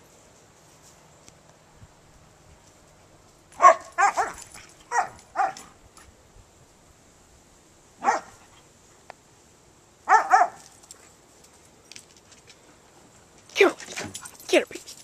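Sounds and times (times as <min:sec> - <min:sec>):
dog play-barking: 0:03.5 - 0:05.8, 0:08.0 - 0:08.5, 0:10.1 - 0:10.7.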